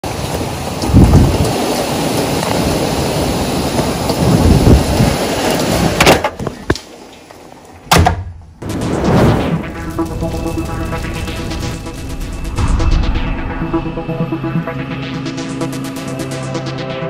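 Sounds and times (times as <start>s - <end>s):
heavy rain: 0.0s - 6.5s, 8.6s - 14.6s
hurricane wind: 0.0s - 6.8s, 8.6s - 14.5s.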